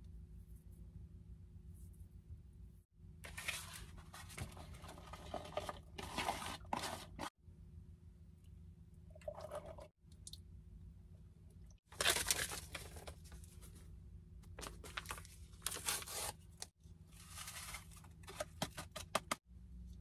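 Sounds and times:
crinkling rustling handling noise: 11.9 - 13.9, 14.5 - 19.0.

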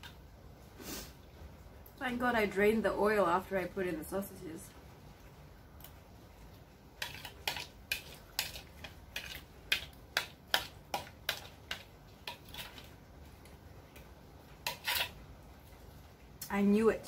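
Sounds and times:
spoon scraping and clinking on plate: 14.6 - 15.2.

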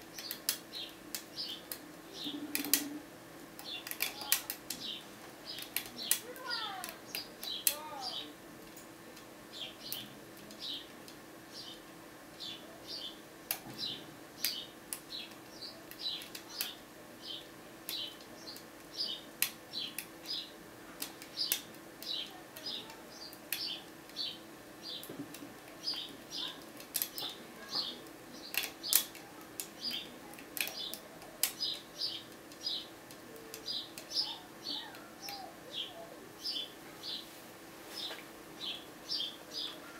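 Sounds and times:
faint steady hum: 0.0 - 39.9
small bird chirping: 25.8 - 29.1, 33.5 - 37.3, 37.9 - 39.9
sharp metallic clicks: 28.4 - 34.2.

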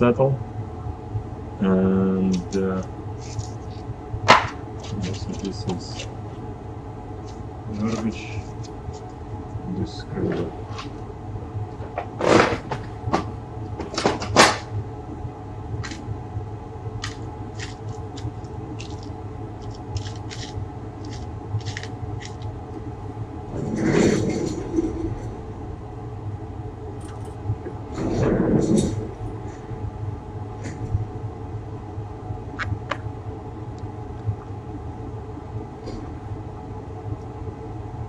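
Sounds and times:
steady low hum: 0.0 - 38.0
rustling and scraping: 3.2 - 6.4, 10.2 - 11.1, 23.5 - 25.4.

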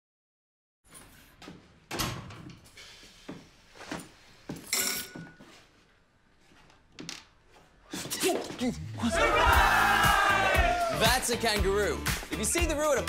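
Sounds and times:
footsteps in a hallway: 0.9 - 8.8.

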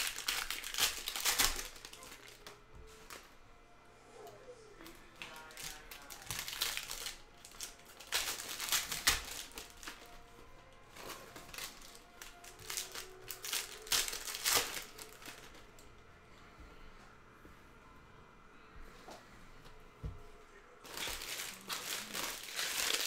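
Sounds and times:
foil wrappers tearing and crinkling: 0.0 - 3.3, 4.8 - 15.7, 20.8 - 23.0.

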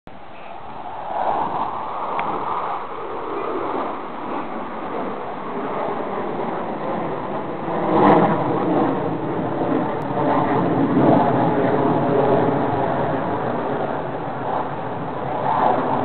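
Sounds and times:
jet aircraft flying overhead: 0.1 - 16.0.

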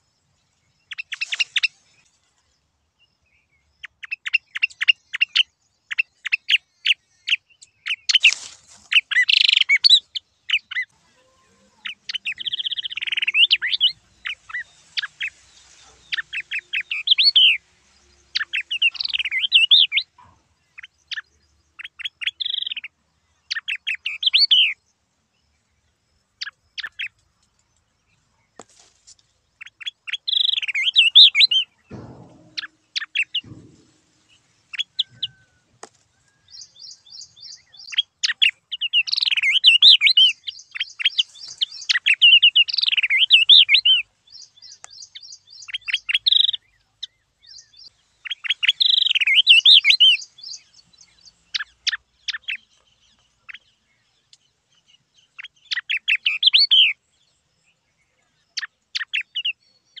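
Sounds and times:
bird warbling whistled song: 3.8 - 11.0, 11.8 - 22.9, 23.5 - 24.8, 29.6 - 35.6, 36.2 - 52.8, 55.3 - 57.0.

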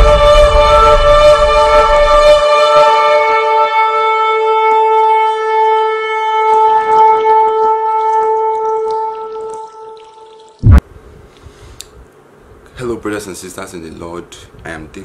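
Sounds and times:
long horn blast: 0.0 - 9.4.

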